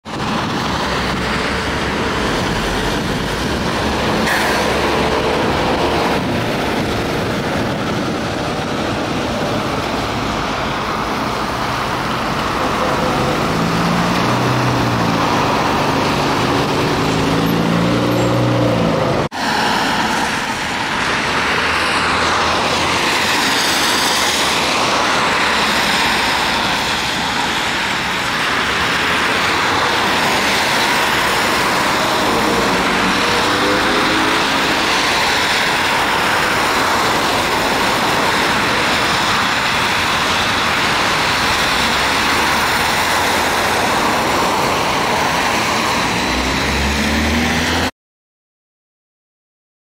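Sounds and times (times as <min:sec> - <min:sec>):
tyre hiss on wet road: 0:19.4 - 0:47.4.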